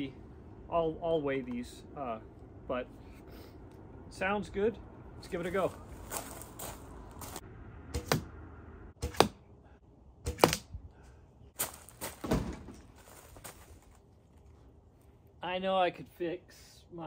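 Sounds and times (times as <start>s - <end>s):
arrows striking straw target: 9.0s - 9.4s, 10.2s - 10.7s.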